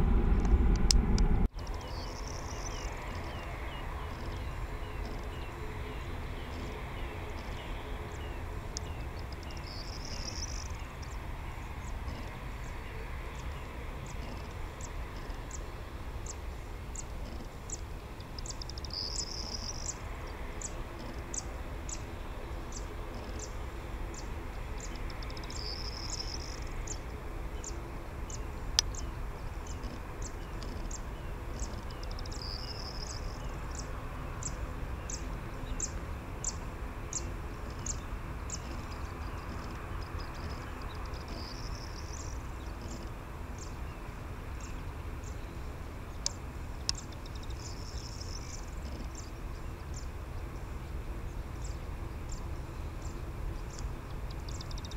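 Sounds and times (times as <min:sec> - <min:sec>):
jet engines idling: 0:00.0 - 0:03.4
high-pitched chirping ticks: 0:04.1 - 0:05.4, 0:08.8 - 0:11.2, 0:13.4 - 0:15.6, 0:16.2 - 0:20.0, 0:22.7 - 0:27.2, 0:28.8 - 0:31.0, 0:31.6 - 0:43.7, 0:46.2 - 0:49.3, 0:53.6 - 0:54.9.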